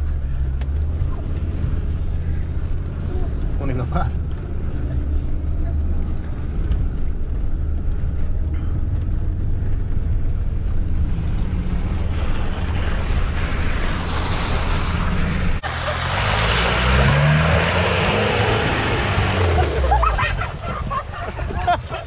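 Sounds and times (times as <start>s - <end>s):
diesel engine droning in cabin: 0.0s - 22.0s
engine revving: 10.6s - 20.7s
splashing through water: 11.0s - 20.8s.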